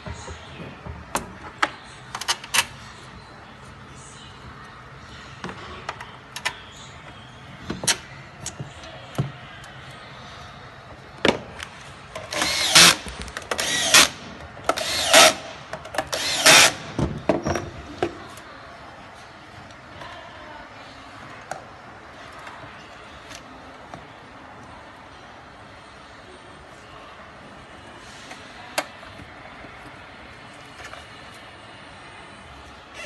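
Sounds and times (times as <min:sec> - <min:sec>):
power screwdriver whirring: 0:12.3 - 0:13.0, 0:13.6 - 0:14.1, 0:14.8 - 0:15.4, 0:16.1 - 0:16.8.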